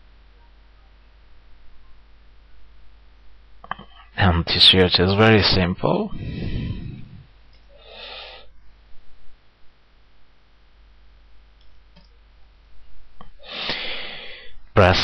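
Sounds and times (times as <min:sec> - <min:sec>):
low hum: 0:00.0 - 0:07.7.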